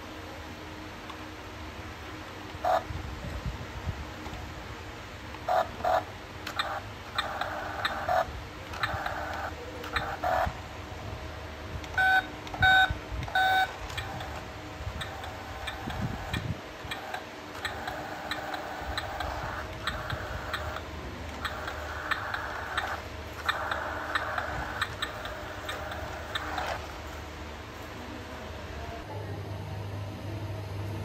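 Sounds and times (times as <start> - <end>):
short electronic beeps: 12.0 - 13.8
toy truck motor whirring: 15.0 - 27.0.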